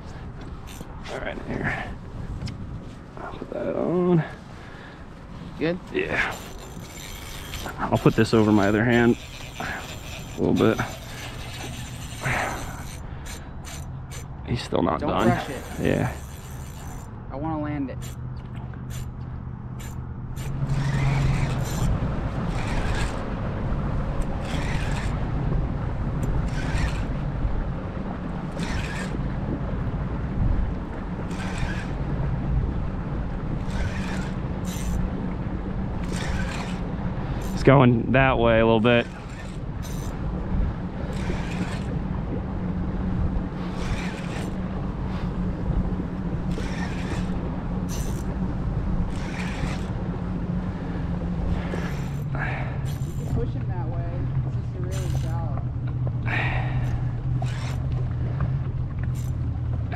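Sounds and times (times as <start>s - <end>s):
boat motor humming: 0.0s - 59.9s
wind buffeting microphone: 18.0s - 59.9s.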